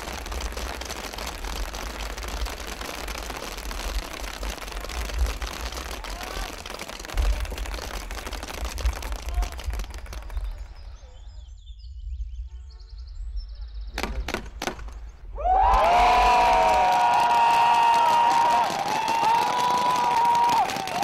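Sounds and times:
paintball markers firing: 13.9 - 15.1.

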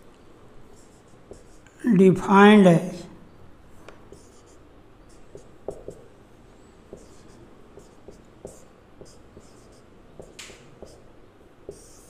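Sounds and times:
marker squeaking on whiteboard: 0.8 - 1.8, 4.0 - 6.1, 6.9 - 11.1, 11.7 - 12.0.

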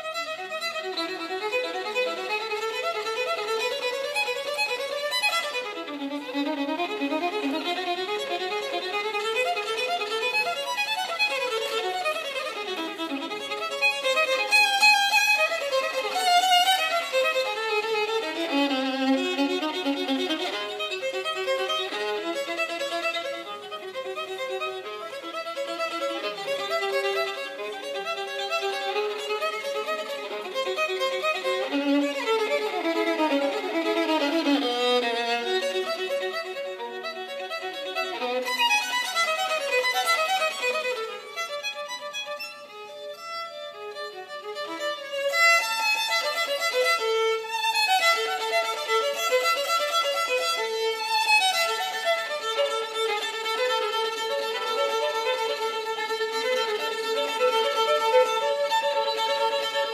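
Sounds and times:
solo violin melody: 0.0 - 59.9.

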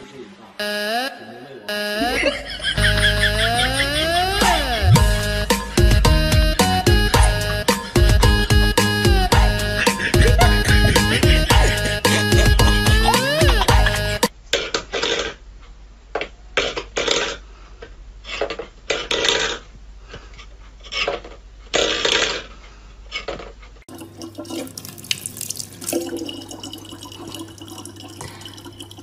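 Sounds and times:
tap water running into bottle: 23.9 - 29.0.

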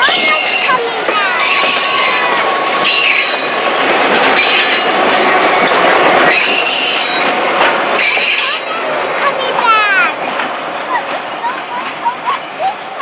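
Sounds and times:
train wheel squeal: 0.0 - 7.4, 8.0 - 8.8
train wheels clattering on rails: 0.0 - 13.0.

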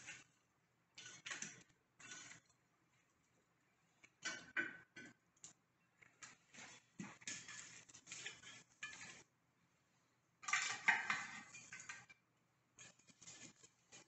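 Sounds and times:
metal shovel scraping coals: 0.0 - 0.4, 1.0 - 2.6, 6.2 - 9.3, 10.4 - 12.2, 12.8 - 14.0.

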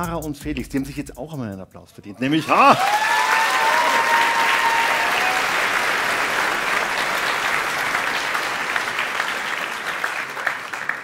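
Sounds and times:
audience applauding: 2.3 - 11.0.

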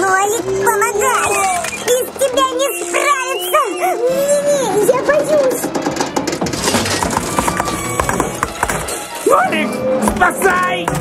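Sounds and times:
cartoon background music: 0.0 - 11.0
clattering clinking sound effects: 5.1 - 9.3.

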